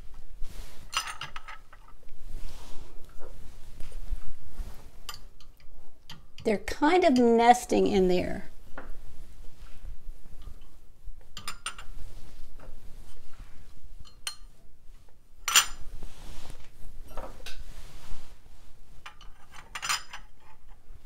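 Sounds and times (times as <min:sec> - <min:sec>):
soft rubbing: 0:00.0 - 0:00.9, 0:01.9 - 0:05.1, 0:08.9 - 0:11.2, 0:11.8 - 0:14.0, 0:15.8 - 0:19.0.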